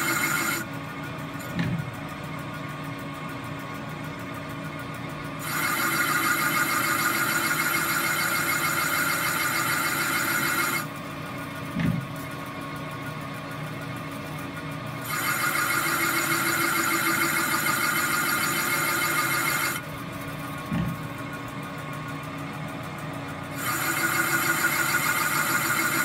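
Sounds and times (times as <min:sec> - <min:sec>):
metal lathe cutting aluminium: 0:00.0 - 0:00.6, 0:15.0 - 0:19.8, 0:23.5 - 0:26.0.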